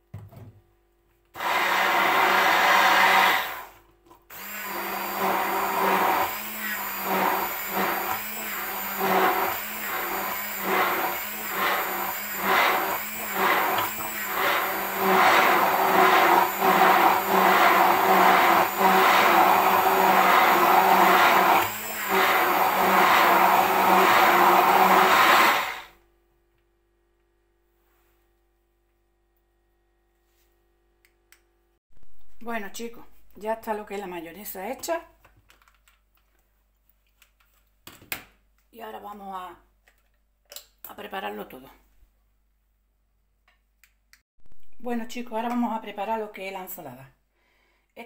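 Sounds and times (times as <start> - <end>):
hand blender running: 1.4 - 26.0.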